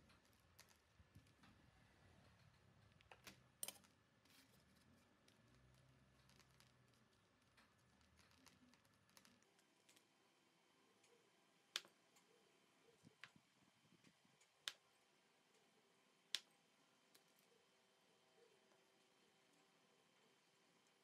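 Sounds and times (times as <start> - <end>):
sharp clicks: 14.4 - 14.9.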